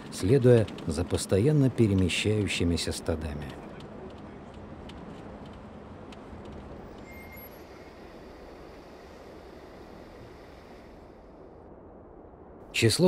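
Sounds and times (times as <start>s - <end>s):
distant van engine and tyres: 0.0s - 11.8s.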